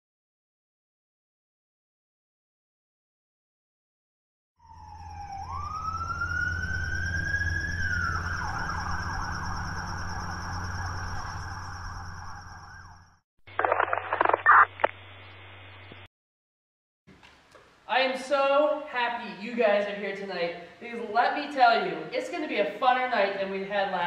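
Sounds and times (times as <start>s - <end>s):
police siren wailing: 4.6s - 13.2s.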